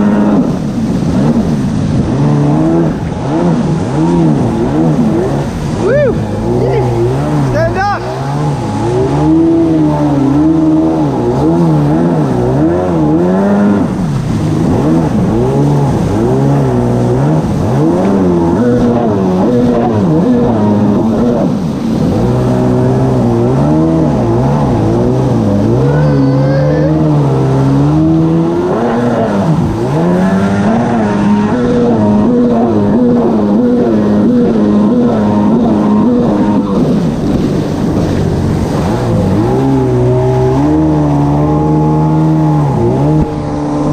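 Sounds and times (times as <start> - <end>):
jet ski engine running: 0.0 - 43.9
water rushing and spraying: 0.0 - 43.9.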